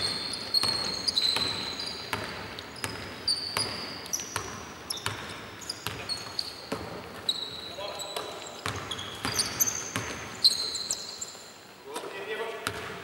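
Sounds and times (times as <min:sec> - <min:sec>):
sneaker squeaks on floor: 0:00.0 - 0:11.6
basketball bouncing on hardwood: 0:00.5 - 0:06.1, 0:06.7 - 0:07.2, 0:08.2 - 0:10.3, 0:12.6 - 0:13.0.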